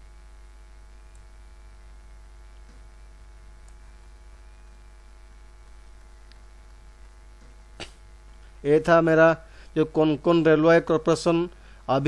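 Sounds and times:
electrical mains hum: 0.0 - 12.0
faint high whine: 0.0 - 12.0
faint ticks: 1.0 - 1.4, 3.5 - 3.9.

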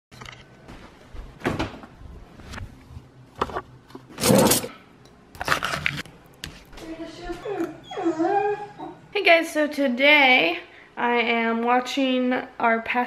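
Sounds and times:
cutlery drawer opening: 3.4 - 4.8
metal cutlery rattling: 4.2 - 4.7.

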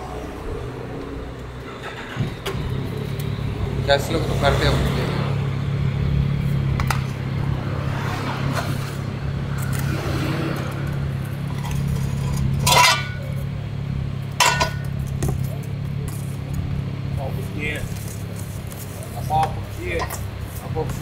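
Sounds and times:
metal brackets clanking: 11.5 - 13.4, 14.4 - 15.0.

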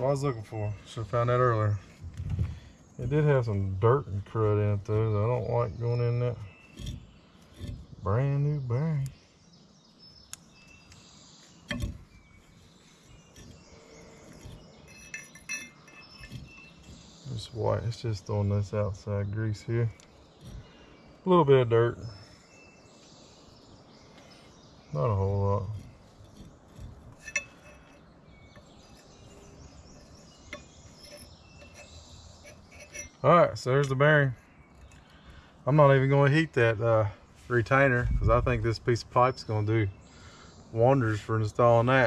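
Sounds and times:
faint outdoor background: 0.0 - 42.0
faint high chirping: 2.5 - 37.2
light metal clinks: 14.3 - 17.4, 25.8 - 33.2.

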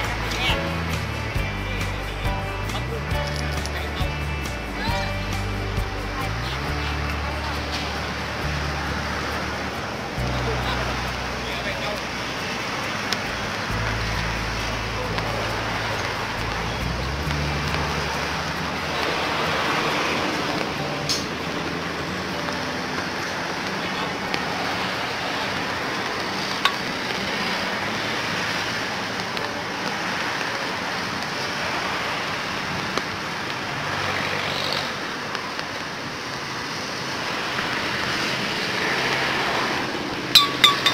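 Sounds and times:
outdoor background rush: 0.0 - 40.9.

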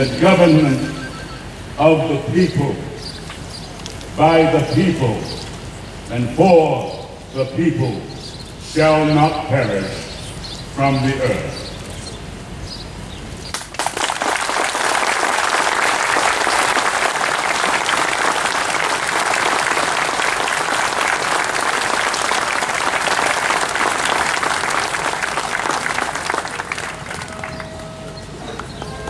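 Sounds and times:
crowd applauding: 0.6 - 1.5, 13.5 - 29.0.

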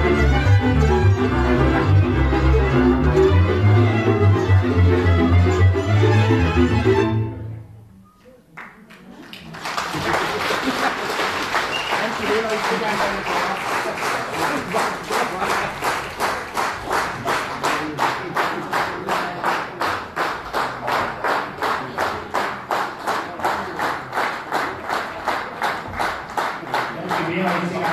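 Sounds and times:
audience clapping in unison: 8.5 - 27.9.

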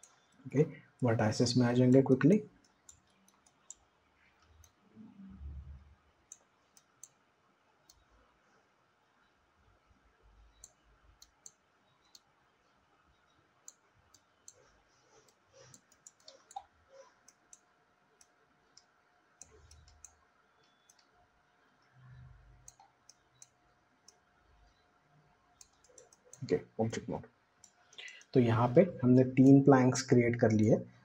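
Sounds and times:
computer mouse clicks: 2.6 - 4.8, 5.5 - 7.2, 7.8 - 8.1, 10.5 - 12.3, 13.6 - 21.1, 22.1 - 24.2, 25.6 - 27.0.

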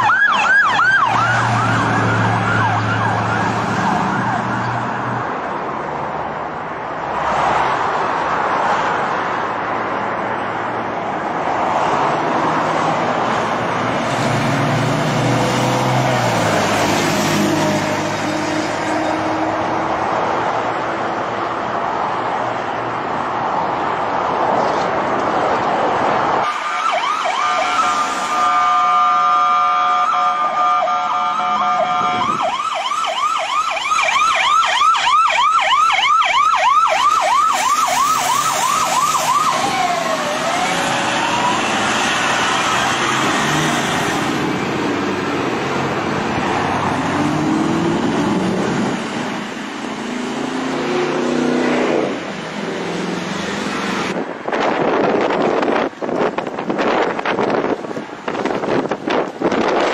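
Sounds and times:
police siren: 0.0 - 5.3, 26.4 - 54.2
vehicle noise: 0.0 - 59.9.

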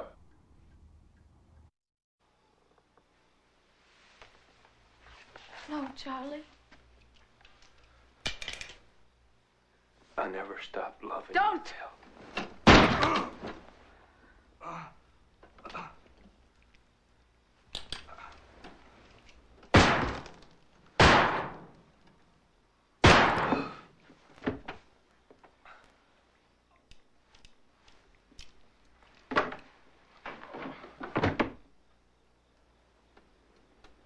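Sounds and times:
handgun shots: 19.8 - 20.4, 21.0 - 21.8, 23.0 - 23.8.

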